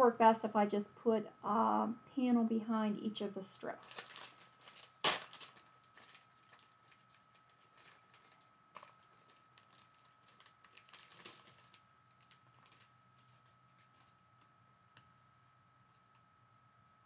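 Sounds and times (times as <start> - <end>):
plastic packaging crinkling: 3.7 - 14.5
paper sheets rustling: 3.8 - 14.1.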